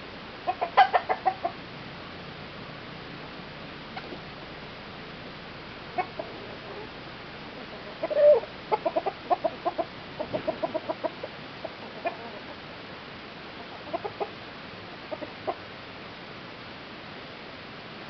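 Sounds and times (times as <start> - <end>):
chickens clucking: 0.4 - 1.6, 3.9 - 4.4, 5.8 - 12.7, 13.5 - 14.4, 15.0 - 15.7.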